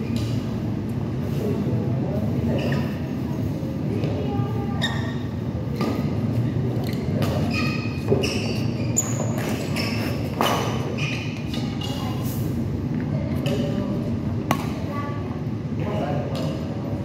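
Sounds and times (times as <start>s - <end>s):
steady low hum: 0.0s - 17.0s
shoes squeaking on court floor: 2.5s - 3.1s, 4.7s - 12.2s
rackets hitting shuttlecock: 14.5s - 14.8s.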